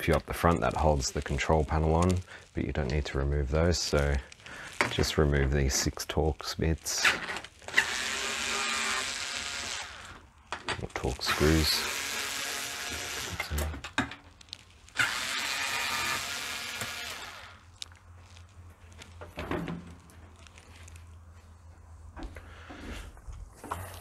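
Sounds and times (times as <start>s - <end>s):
electric screwdriver whirring: 7.7s - 10.2s, 11.4s - 13.6s, 14.9s - 17.6s.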